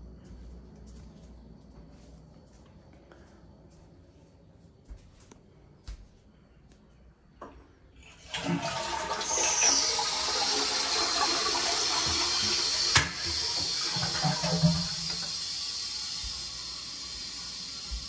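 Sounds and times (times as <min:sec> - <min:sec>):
toilet flushing: 0:08.0 - 0:18.0.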